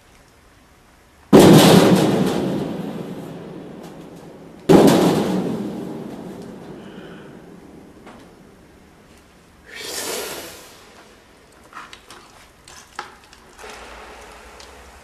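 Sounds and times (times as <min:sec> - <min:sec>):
loud booming impacts: 0:01.4 - 0:08.6.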